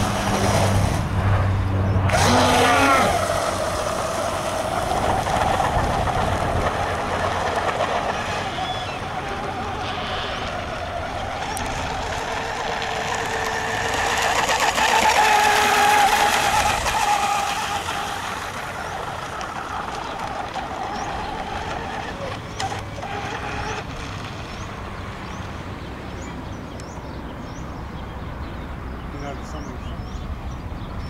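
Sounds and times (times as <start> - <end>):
electric model boat motor whine: 2.0 - 25.6.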